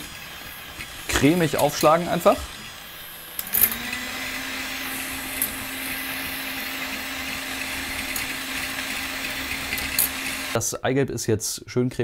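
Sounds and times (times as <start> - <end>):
electric hand mixer whirring: 0.0 - 10.6
mixer clicks: 3.4 - 10.6.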